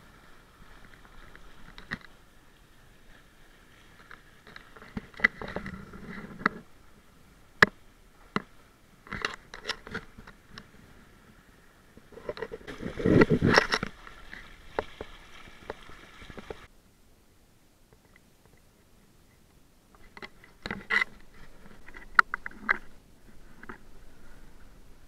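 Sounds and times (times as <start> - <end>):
water slapping against hull: 12.4 - 16.7.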